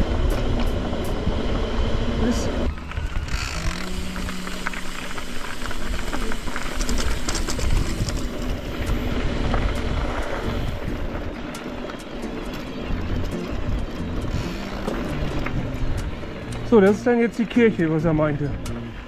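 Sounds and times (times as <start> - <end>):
wind buffeting microphone: 0.0 - 16.7
tyre and trail noise: 0.0 - 19.0
rattles and clicks: 2.7 - 17.6.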